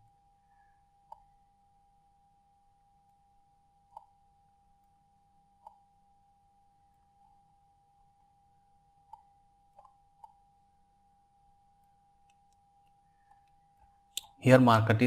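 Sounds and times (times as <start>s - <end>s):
faint steady hum: 0.0s - 15.0s
computer mouse clicks: 1.1s - 1.3s, 3.9s - 4.2s, 9.1s - 10.4s.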